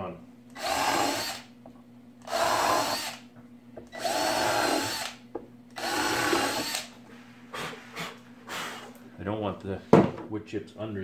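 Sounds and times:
cordless drill whining: 0.5 - 1.5, 2.2 - 3.2, 3.9 - 5.2, 5.8 - 6.9.

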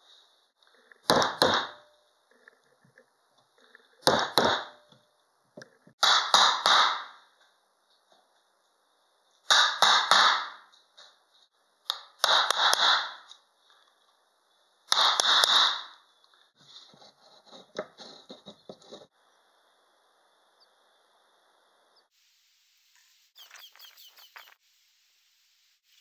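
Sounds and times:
hammer striking wood chisel: 1.0 - 1.8, 4.0 - 4.9.

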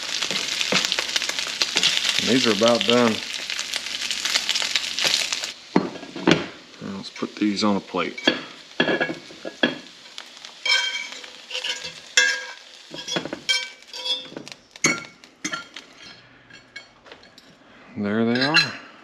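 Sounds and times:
hot oil sizzling: 0.0 - 17.4
metal fork scraping a skillet: 10.6 - 17.4.

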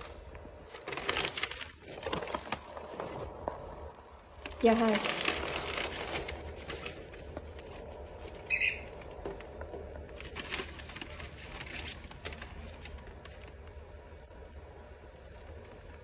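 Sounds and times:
bird crinkling paper with beak: 0.0 - 14.3.

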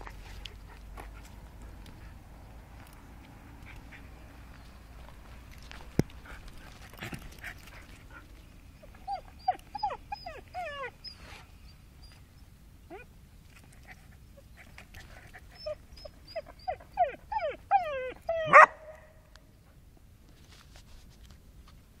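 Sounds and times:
dog whining and yelping: 7.0 - 12.3, 12.9 - 13.1, 13.8 - 18.9.

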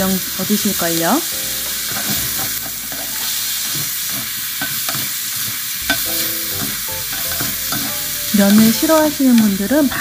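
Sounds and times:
food sizzling in a pan: 0.0 - 10.0
spatula scraping and tapping pan: 5.8 - 9.5.

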